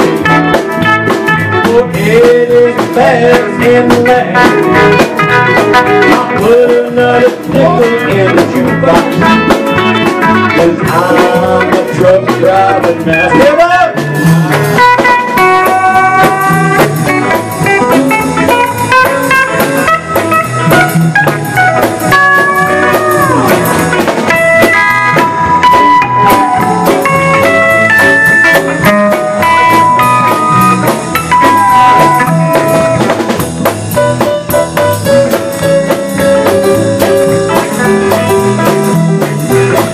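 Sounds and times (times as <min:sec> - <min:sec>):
drums: 0:00.0 - 0:39.9
electric bass: 0:00.0 - 0:39.9
pedal steel guitar sliding notes: 0:14.2 - 0:33.1.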